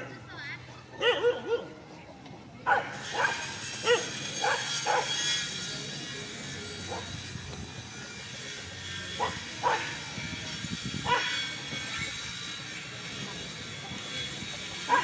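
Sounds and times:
steady background noise: 0.0 - 15.0
dogs barking: 1.0 - 1.8, 2.6 - 5.2, 9.2 - 10.0, 11.0 - 11.4.

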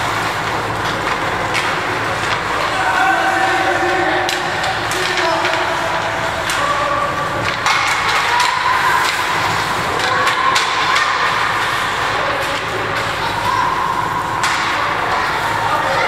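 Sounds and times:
hockey sticks and puck knocking: 0.0 - 15.2
spectators shouting: 2.5 - 12.1.

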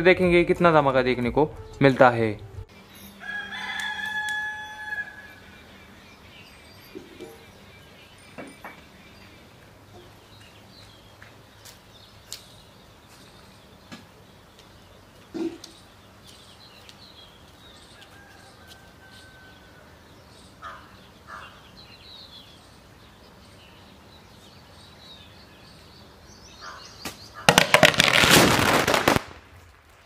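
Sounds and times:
firecrackers crackling: 27.4 - 30.0.

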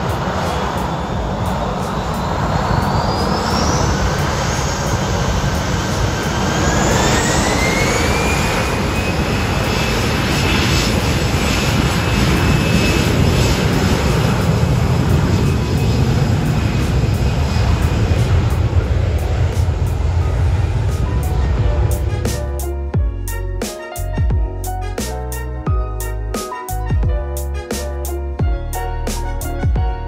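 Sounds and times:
jet engine whine: 0.0 - 25.0
low engine rumble: 14.4 - 23.6.

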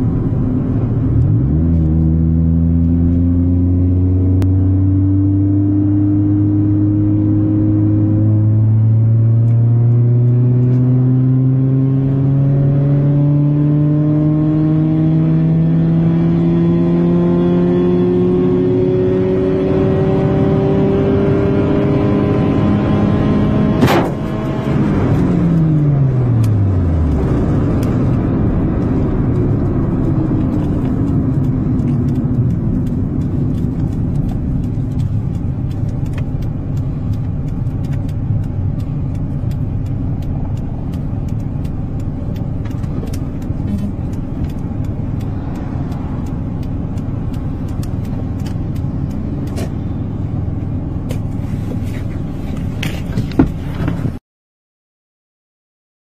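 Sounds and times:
car engine at full throttle: 0.0 - 54.2
rough rumbling with cracks: 26.4 - 49.6.

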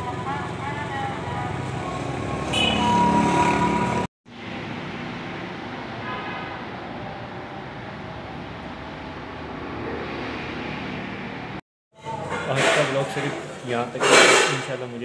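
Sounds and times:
street traffic: 0.0 - 15.0
vehicle horn: 2.4 - 4.1, 6.0 - 6.6.

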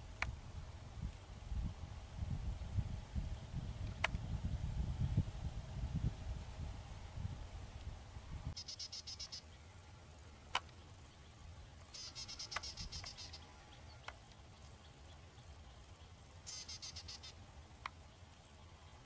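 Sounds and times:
insect chirping trills: 8.6 - 19.0
sharp clicks: 12.0 - 13.2.

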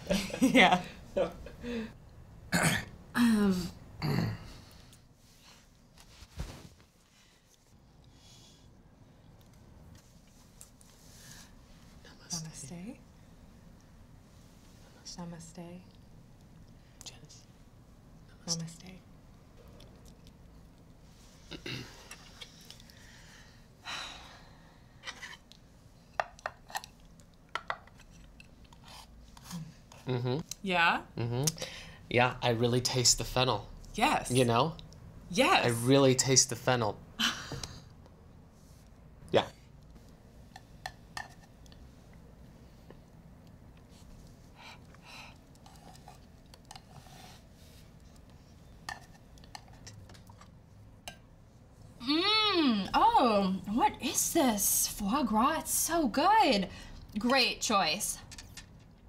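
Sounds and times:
soft rustle: 5.2 - 7.8.

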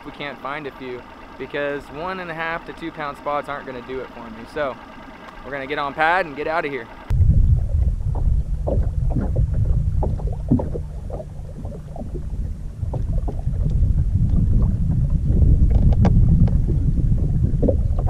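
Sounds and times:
wind buffeting microphone: 7.1 - 18.0
water splashing against boat hull: 7.5 - 18.0.

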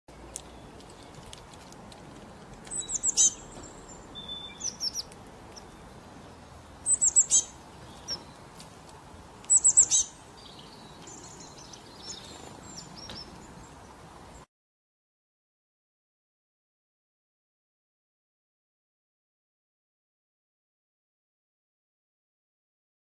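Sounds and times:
songbird chirping high: 2.6 - 8.6, 9.3 - 14.5.

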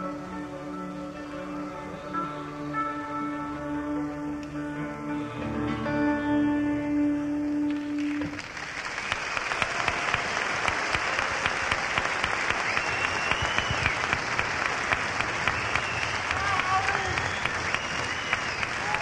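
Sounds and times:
acoustic song: 0.0 - 8.4
audience clapping and cheering: 7.7 - 19.0
high whistle from crowd: 7.7 - 19.0.

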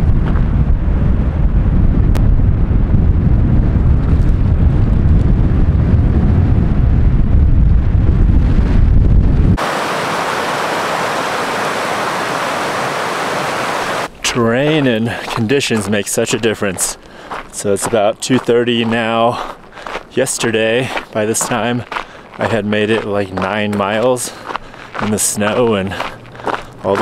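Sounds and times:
wind buffeting microphone: 0.0 - 27.0
creek rushing over rocks: 9.6 - 16.0.

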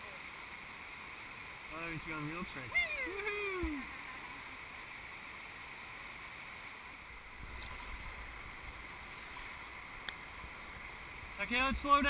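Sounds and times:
whitewater rapids rushing: 1.7 - 4.9.

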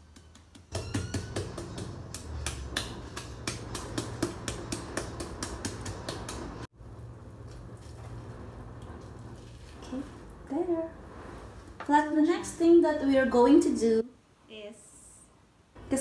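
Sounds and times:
meat mallet tapping fish: 0.1 - 6.6.

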